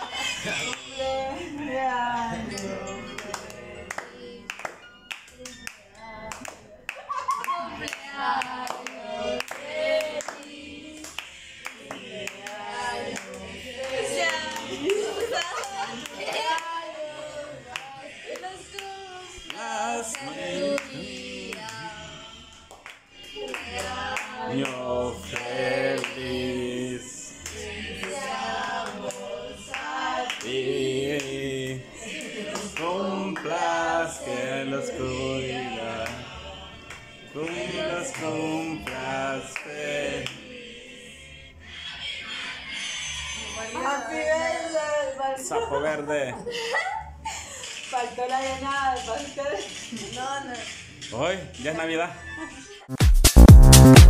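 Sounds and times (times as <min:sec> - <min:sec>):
people clapping: 0:00.0 - 0:00.9, 0:02.5 - 0:16.9, 0:17.7 - 0:26.8, 0:27.4 - 0:33.8, 0:36.0 - 0:36.2, 0:36.8 - 0:40.4
voices singing: 0:00.0 - 0:50.0
song with singing over beat: 0:53.0 - 0:54.0.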